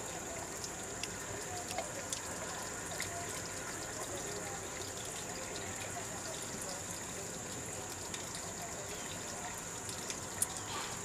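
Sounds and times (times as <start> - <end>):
faint chirps and ticks: 0.0 - 11.0
forest hiss: 10.3 - 11.0.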